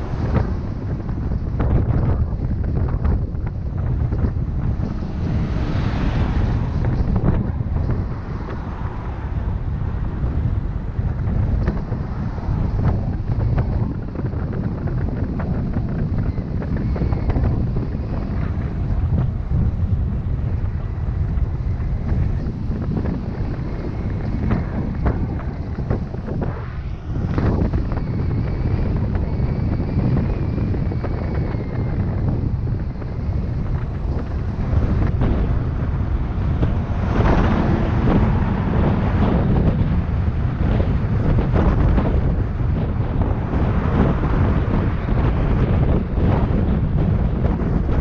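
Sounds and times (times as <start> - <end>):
constant low rumble: 0.0 - 48.0
wind buffeting microphone: 0.0 - 48.0
truck passing: 2.0 - 15.2, 31.6 - 47.9.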